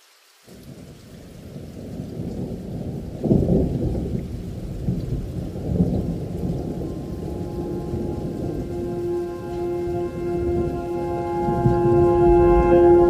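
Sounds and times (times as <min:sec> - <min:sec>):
rain: 0:00.0 - 0:13.0
muffled thunder rumble: 0:00.6 - 0:13.0.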